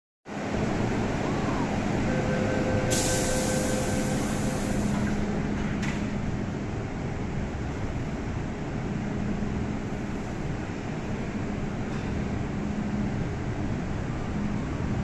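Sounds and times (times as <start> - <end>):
train hum: 0.3 - 15.0
two-note warning tone: 1.2 - 5.0
train doors clunk shut: 2.4 - 6.3
high hiss: 2.9 - 5.0.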